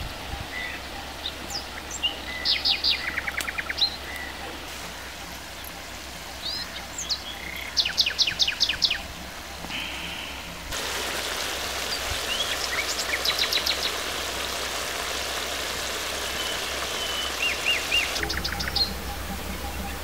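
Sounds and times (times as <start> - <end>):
curry simmering sizzling hiss: 9.6 - 20.0
bird calling sharp high notes: 16.2 - 20.0.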